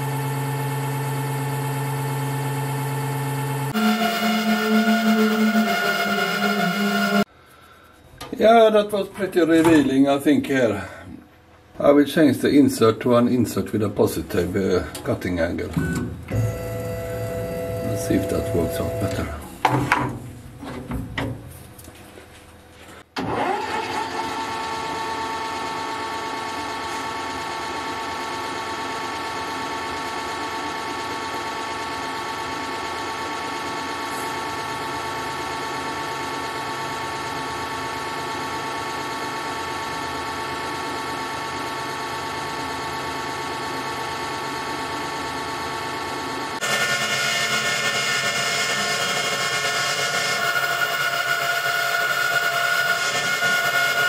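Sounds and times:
metal lathe whine: 0.0 - 7.3, 16.3 - 19.4, 42.0 - 54.0.

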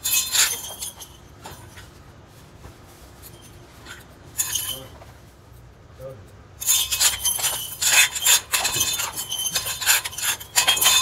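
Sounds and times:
metal springs clinking in canisters: 0.0 - 2.0, 3.2 - 5.2, 6.6 - 11.0.

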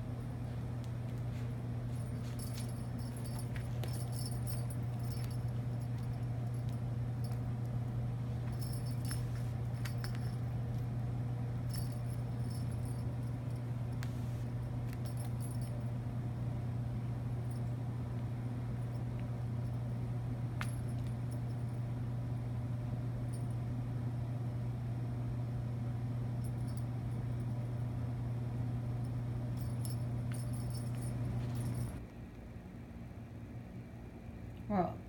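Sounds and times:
low electrical hum: 0.0 - 35.0
faint light jingles: 29.5 - 32.0.

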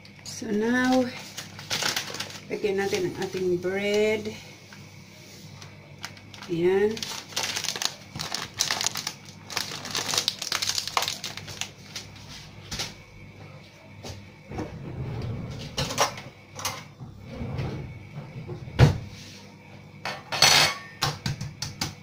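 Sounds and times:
packaging rustling: 0.8 - 3.5, 5.6 - 12.2
items clicking and knocking: 6.0 - 11.7.

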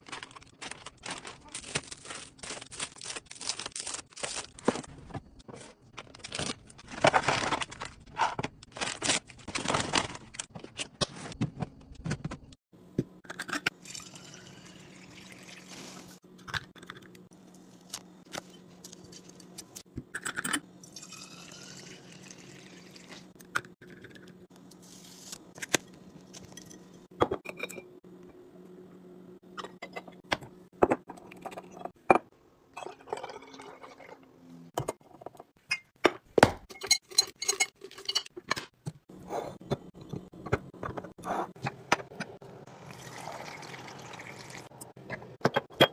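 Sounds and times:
plastic bins and bottles clinking: 0.0 - 2.6, 4.5 - 12.4
liquid pouring into bottle: 13.9 - 15.7, 42.9 - 44.6.

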